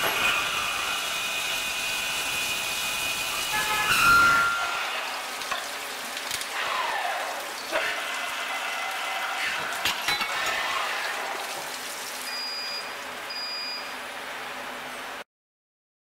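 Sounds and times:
coolant splashing and hissing: 0:00.0 - 0:13.3
brief high-pitched tones: 0:03.4 - 0:04.9.

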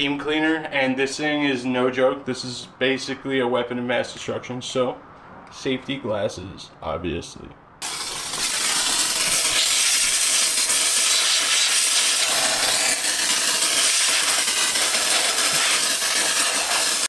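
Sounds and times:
steam cleaner hissing: 0:07.8 - 0:17.0.

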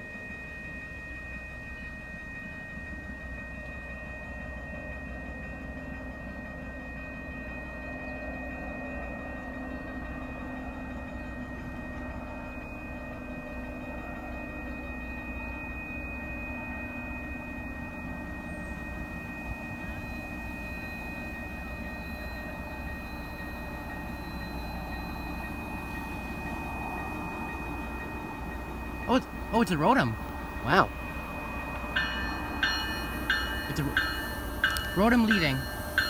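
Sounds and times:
rails ringing: 0:14.6 - 0:36.0.

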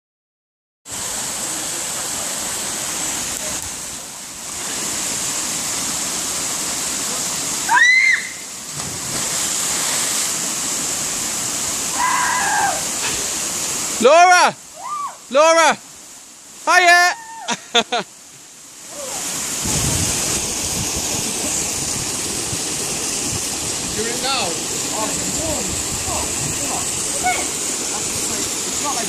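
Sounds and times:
waterfall rushing: 0:00.9 - 0:29.0
person yelling: 0:16.7 - 0:17.6.

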